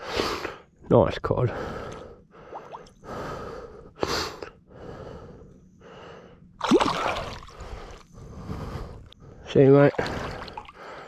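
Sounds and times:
water splashing: 0:06.6 - 0:07.6.

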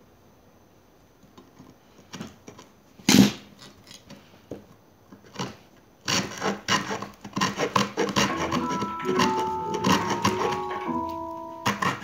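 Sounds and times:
saw cutting wood: 0:06.1 - 0:10.7.

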